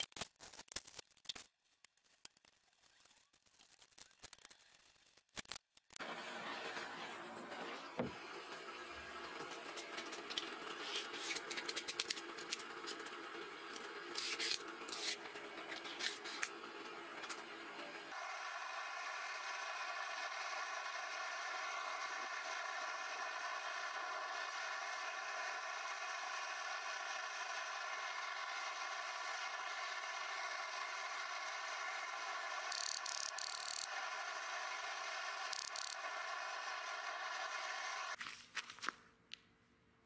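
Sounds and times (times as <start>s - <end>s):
steady mechanical hum: 6.0s - 38.2s
sand hissing into flasks: 18.1s - 38.2s.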